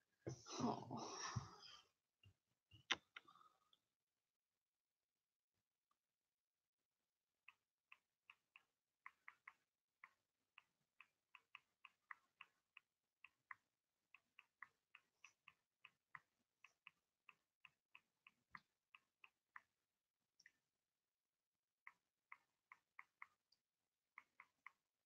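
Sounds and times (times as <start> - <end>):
faint irregular clicking: 7.4 - 19.7, 20.3 - 20.6, 21.8 - 24.9.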